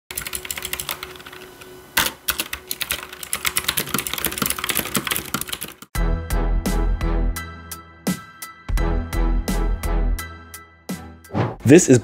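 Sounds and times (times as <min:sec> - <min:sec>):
fast mechanical keyboard typing: 0:00.1 - 0:05.9.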